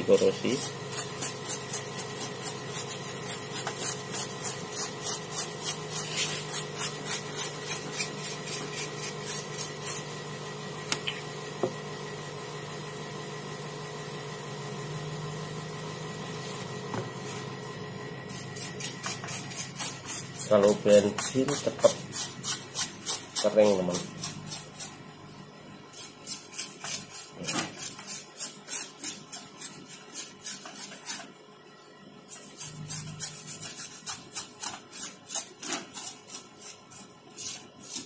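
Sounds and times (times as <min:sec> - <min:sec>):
paintbrush scrubbing circuit board: 0:00.0 - 0:10.2, 0:18.3 - 0:25.0, 0:25.9 - 0:31.4, 0:32.3 - 0:38.0.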